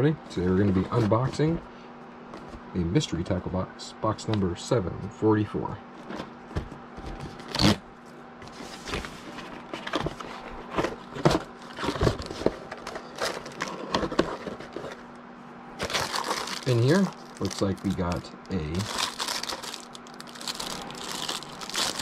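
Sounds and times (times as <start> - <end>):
cardboard box rustling and scraping: 0.6 - 1.6, 8.4 - 15.1.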